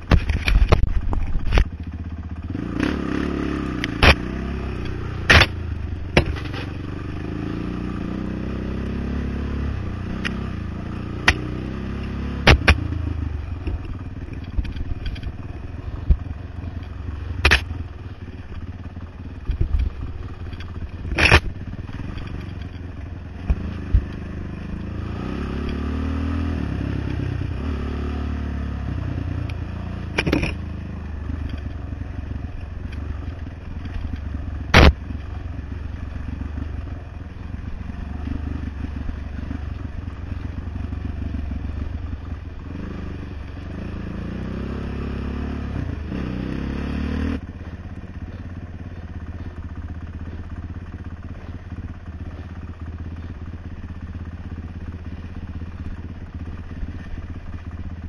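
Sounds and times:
quad bike engine running: 0:00.0 - 0:58.0.

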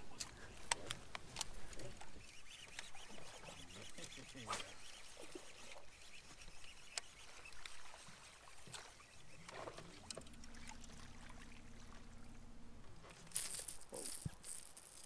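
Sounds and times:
rod and tackle clicks: 0:00.2 - 0:07.8, 0:13.1 - 0:15.0
fishing reel whirring: 0:02.2 - 0:08.2, 0:13.3 - 0:15.0.

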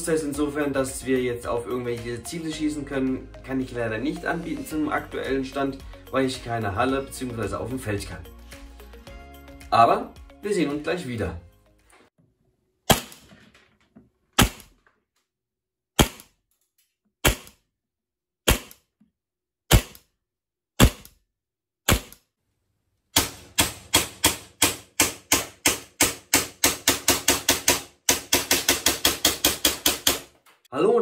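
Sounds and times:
airsoft pistol shots: 0:12.9 - 0:13.2, 0:14.4 - 0:14.7, 0:16.0 - 0:16.4, 0:17.2 - 0:17.6, 0:18.5 - 0:18.8, 0:19.7 - 0:20.0, 0:20.8 - 0:21.1, 0:21.9 - 0:22.2.

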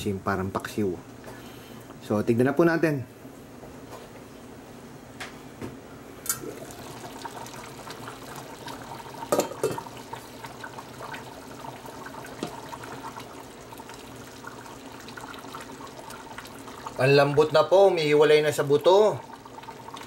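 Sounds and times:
pot lid clink: 0:09.3 - 0:09.8
ladle knocking pot: 0:09.3 - 0:09.9.

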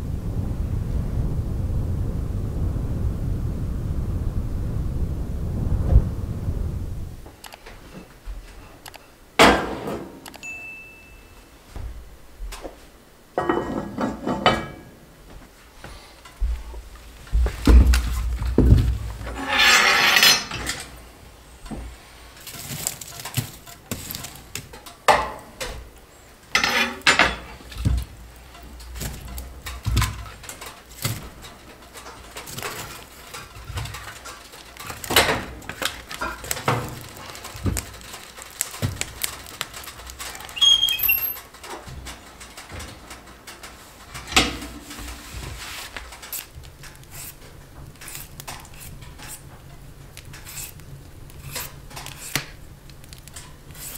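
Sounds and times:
handling noises: 0:07.2 - 0:53.9
dishes and utensils clinking: 0:13.4 - 0:15.0, 0:19.3 - 0:21.0, 0:26.5 - 0:27.7.

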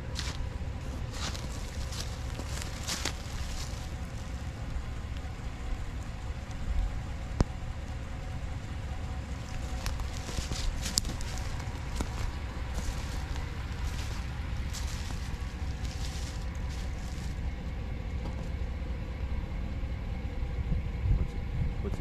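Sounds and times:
footsteps on dry leaves: 0:00.0 - 0:04.4, 0:09.3 - 0:17.5
wind buffeting microphone: 0:20.5 - 0:22.0.

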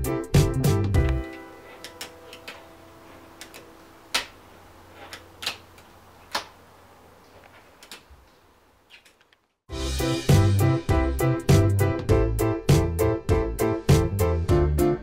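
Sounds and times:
background music chord: 0:00.0 - 0:04.6, 0:09.7 - 0:15.0
faint steady hum: 0:01.0 - 0:09.6.

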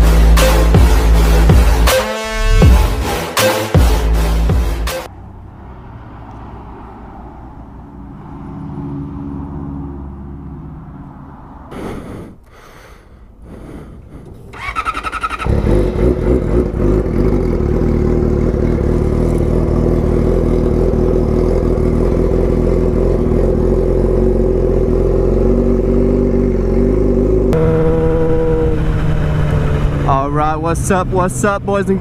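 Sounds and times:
motorcycle engine revving: 0:14.5 - 0:32.0.

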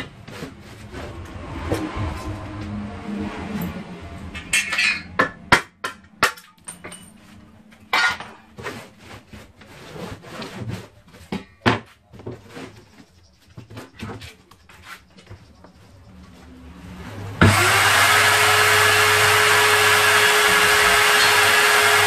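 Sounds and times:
board scraping as it slides: 0:00.1 - 0:03.6, 0:08.6 - 0:11.2.

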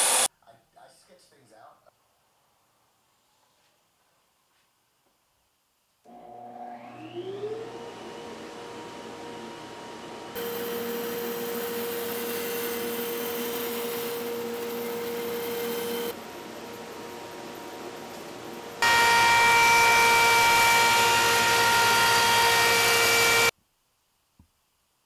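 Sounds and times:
bandsaw motor humming: 0:06.1 - 0:23.5
saw blade cutting wood: 0:18.8 - 0:23.5.

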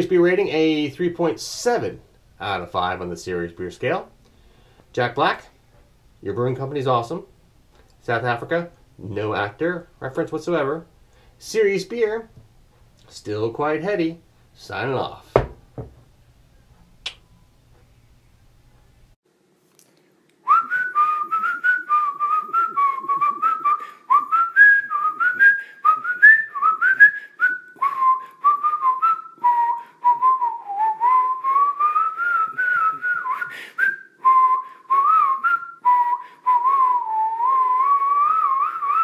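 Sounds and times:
whistled tune: 0:20.4 - 0:39.0.

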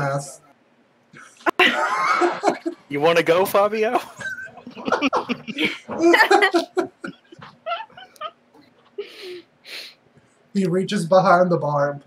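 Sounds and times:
people laughing and giggling: 0:01.3 - 0:02.9, 0:03.9 - 0:09.1.

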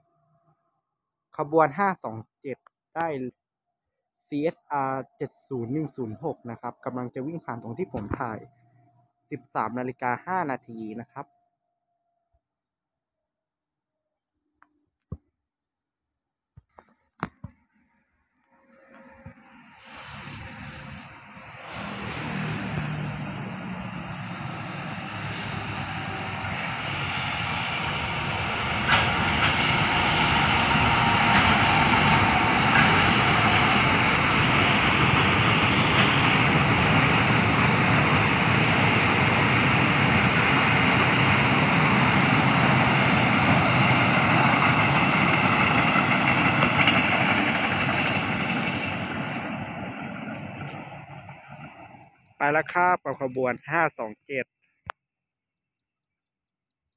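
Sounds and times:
freight train passing: 0:18.6 - 0:52.8
wheels clattering on rails: 0:28.7 - 0:51.8.

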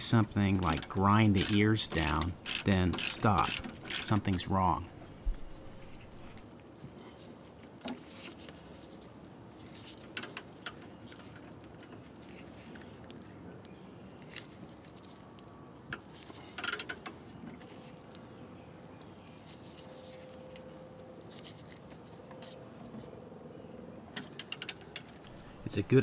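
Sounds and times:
wrench metallic clicks: 0:00.2 - 0:04.5.

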